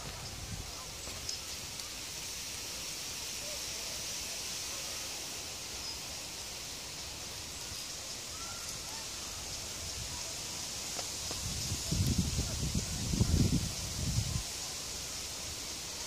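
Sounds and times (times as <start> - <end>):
faint chirps: 0.0 - 10.3
steady high hiss: 0.0 - 16.0.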